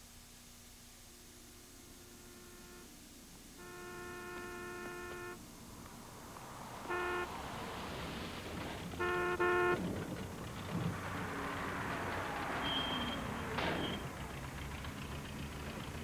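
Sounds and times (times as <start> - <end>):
car horns honking: 1.3 - 14.3
traffic on wet road: 4.0 - 16.0.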